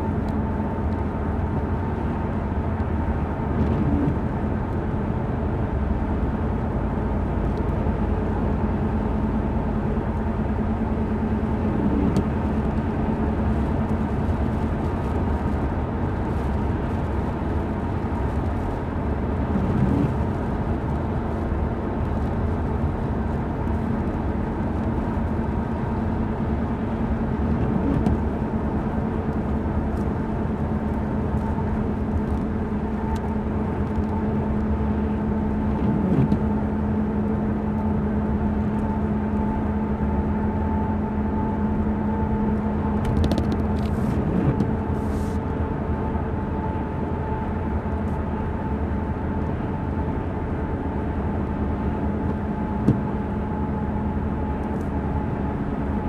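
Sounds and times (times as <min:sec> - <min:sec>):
drivetrain drone: 0:00.0 - 0:56.0
windshield wiper sweeping: 0:03.6 - 0:04.2, 0:11.6 - 0:12.4, 0:19.4 - 0:20.3, 0:27.4 - 0:28.4, 0:34.9 - 0:36.5, 0:42.9 - 0:45.4, 0:52.2 - 0:53.3
tyre hiss and rumble: 0:43.0 - 0:45.5.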